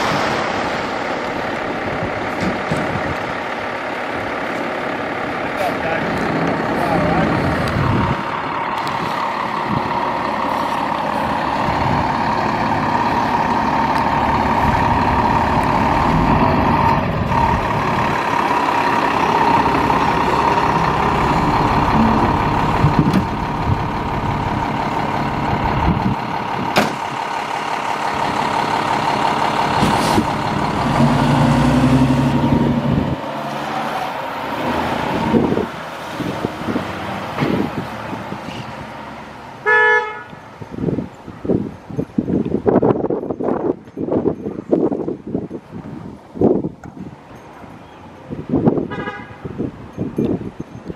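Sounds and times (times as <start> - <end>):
fire engine diesel engine: 0.0 - 50.9
sharp knocks: 26.7 - 27.0.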